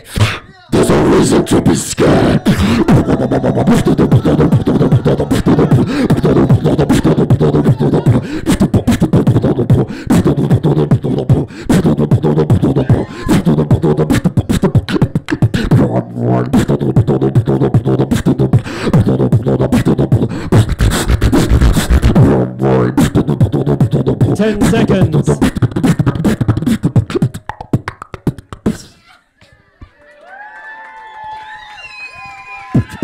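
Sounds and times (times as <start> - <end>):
beatboxing through microphone: 0.0 - 29.1, 32.7 - 33.0
low steady bass tone: 0.8 - 12.7.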